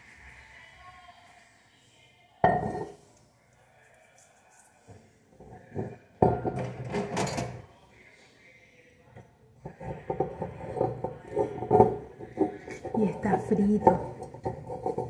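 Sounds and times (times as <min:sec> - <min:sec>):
kitchen utensils clattering: 0:06.2 - 0:07.6, 0:09.7 - 0:15.0.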